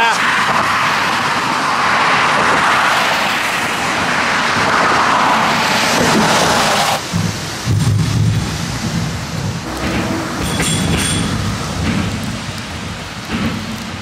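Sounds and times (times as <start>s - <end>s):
tyres hissing on wet road: 0.0s - 14.0s
low rumble: 8.8s - 14.0s.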